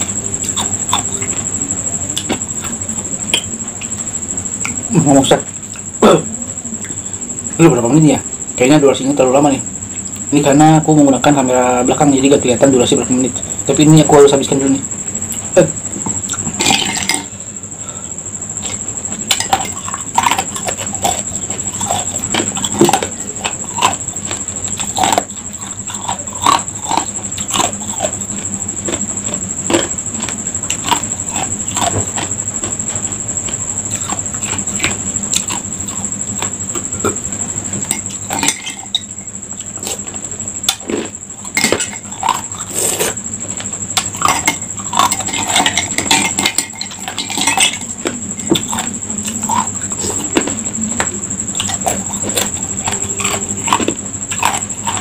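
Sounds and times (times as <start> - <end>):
high-pitched whine: 0.0 - 55.0
ice cubes being chewed: 16.3 - 17.3, 18.6 - 37.2, 44.0 - 55.0.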